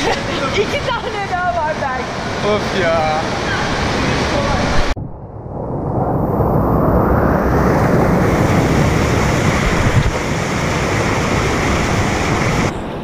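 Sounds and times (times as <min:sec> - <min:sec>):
water rushing between boulders: 0:00.0 - 0:05.0, 0:07.9 - 0:12.7.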